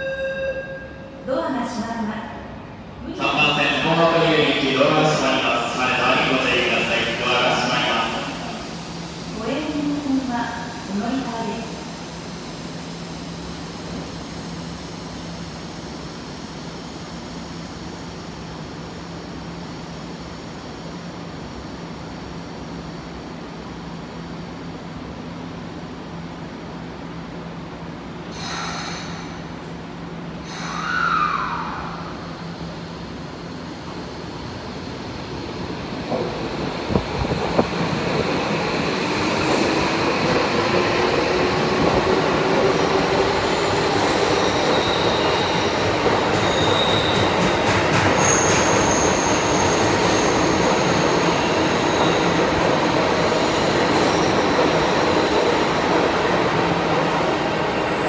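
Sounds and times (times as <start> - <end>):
rush of train cars passing: 31.2 - 58.0.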